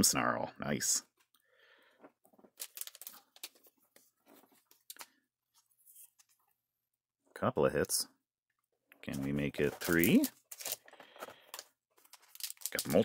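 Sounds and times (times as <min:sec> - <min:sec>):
trading card handling noises: 0:02.3 - 0:06.4, 0:09.0 - 0:13.0.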